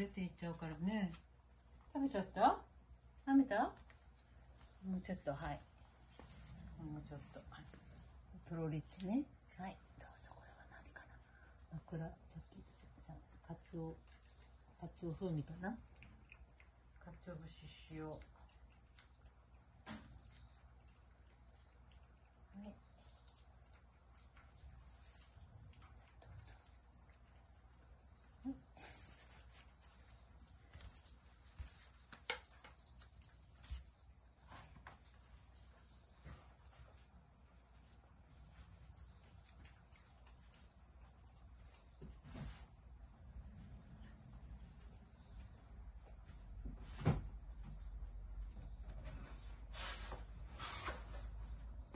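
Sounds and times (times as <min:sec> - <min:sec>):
insects chirring: 0:00.0 - 0:51.9.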